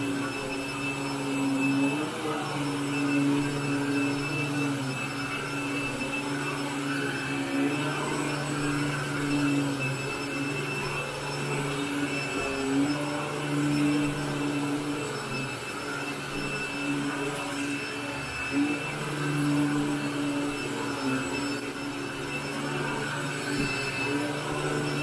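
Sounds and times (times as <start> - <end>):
vacuum cleaner motor hum: 0.0 - 25.0.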